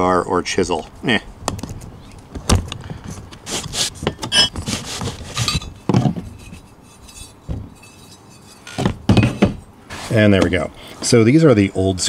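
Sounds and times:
screwdriver scraping metal rim: 0:03.3 - 0:08.8.

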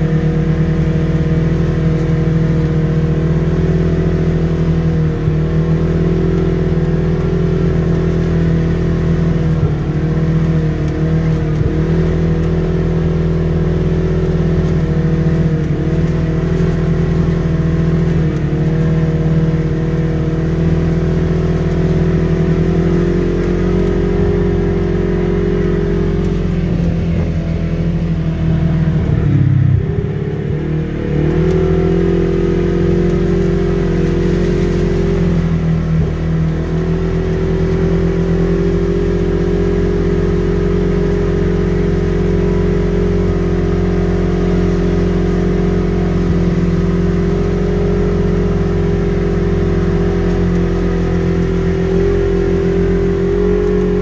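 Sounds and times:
utility vehicle engine running: 0:00.0 - 0:54.0.

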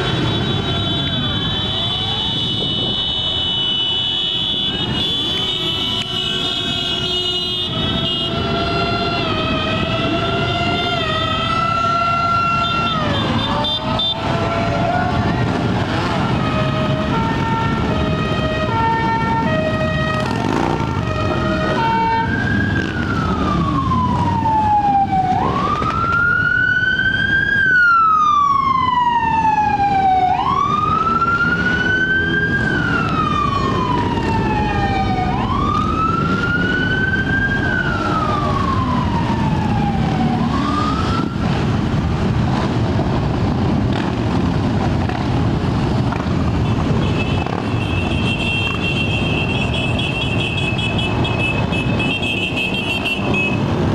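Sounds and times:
motorcycle engines passing: 0:00.0 - 0:53.9
siren wailing: 0:06.4 - 0:42.7.

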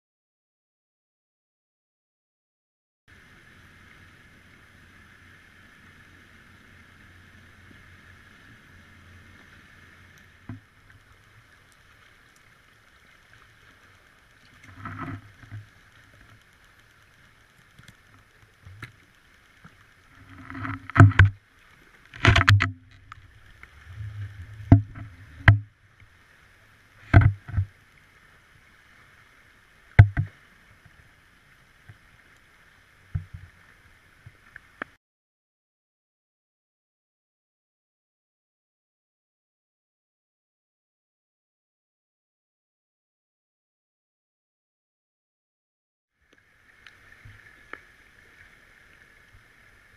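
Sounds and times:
faint steady hum: 0:03.1 - 0:35.0, 0:46.2 - 0:49.9
camera rig knocking underwater: 0:14.6 - 0:15.7, 0:20.2 - 0:21.4, 0:22.1 - 0:25.7, 0:27.0 - 0:27.7, 0:30.0 - 0:30.4.

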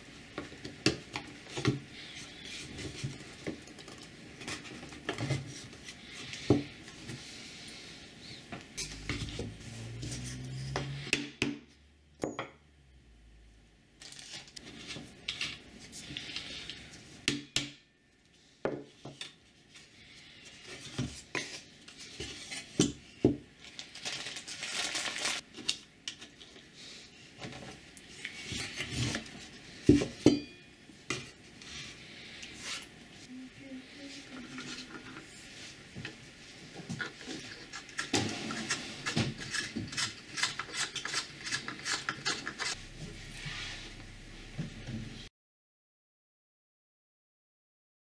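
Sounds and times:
scraping and sliding on bench: 0:42.6 - 0:44.0.

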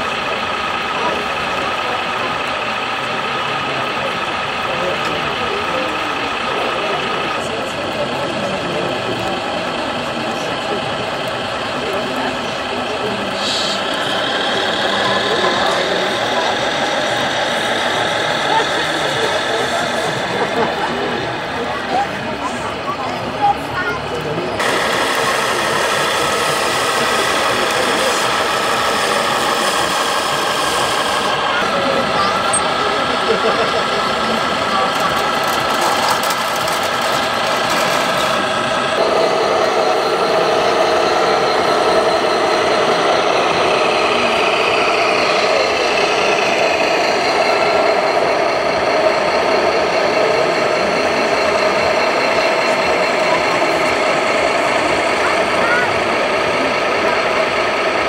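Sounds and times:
model vehicle engine hum: 0:00.0 - 0:58.0.

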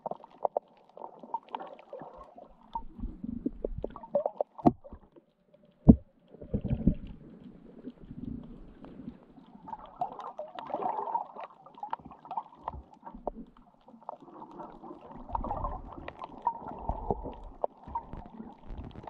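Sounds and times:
sharp clicks and crackles: 0:15.3 - 0:19.0.

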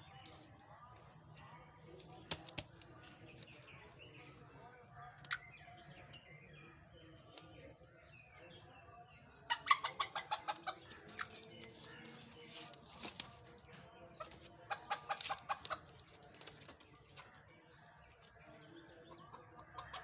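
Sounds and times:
hens clucking loudly: 0:09.5 - 0:11.4.

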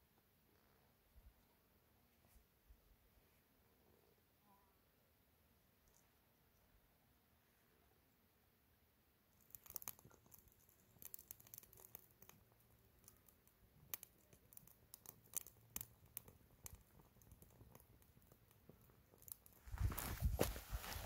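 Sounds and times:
wood fire crackling: 0:09.3 - 0:21.0.

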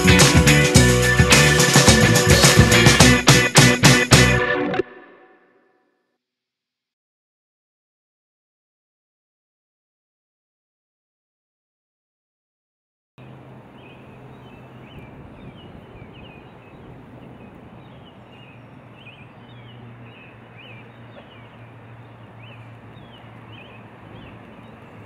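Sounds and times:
small birds chirping: 0:13.2 - 0:25.0.

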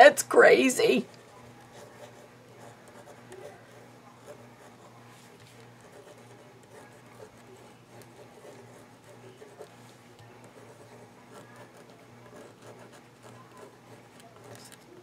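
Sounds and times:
low steady hum: 0:00.0 - 0:15.0
pen scratching on paper: 0:01.1 - 0:14.9.

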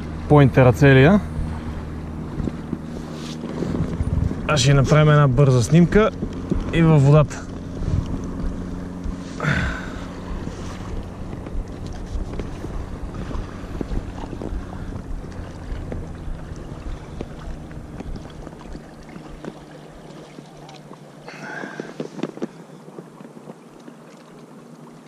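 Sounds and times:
wind buffeting microphone: 0:00.0 - 0:20.1
handling ticks and knocks: 0:21.8 - 0:23.6.

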